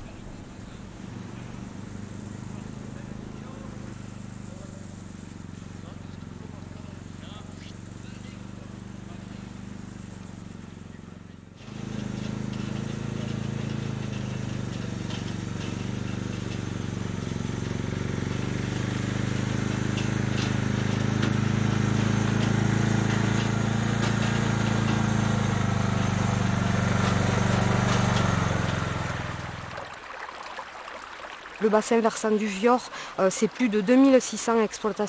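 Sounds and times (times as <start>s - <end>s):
small vehicle engine running: 0.0s - 35.0s.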